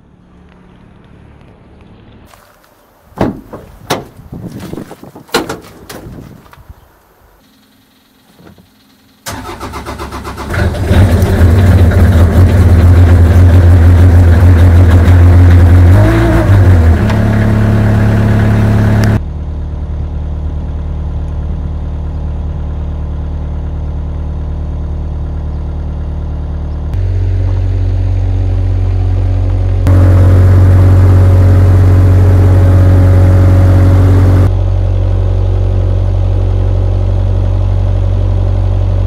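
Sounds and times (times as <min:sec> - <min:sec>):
diesel engine running: 0:08.2 - 0:39.0.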